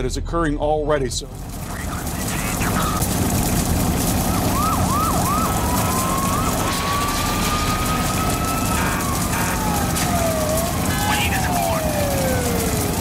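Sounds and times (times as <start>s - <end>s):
steady rushing noise: 1.0s - 13.0s
emergency siren wailing: 1.7s - 13.0s
second siren gliding down: 4.2s - 13.0s.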